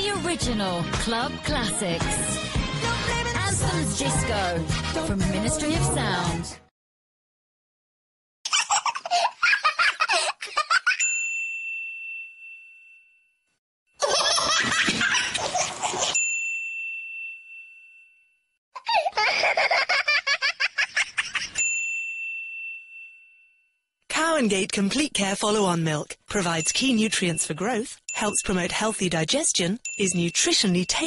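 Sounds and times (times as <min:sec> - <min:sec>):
babies laughing and giggling: 0:08.5 - 0:11.1, 0:14.0 - 0:16.2, 0:18.8 - 0:21.6
bell-like ding: 0:21.6 - 0:23.8.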